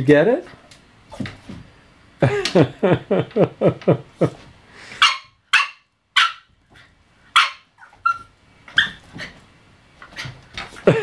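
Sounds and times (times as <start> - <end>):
puppy yipping and barking: 5.0 - 6.5, 7.4 - 9.0.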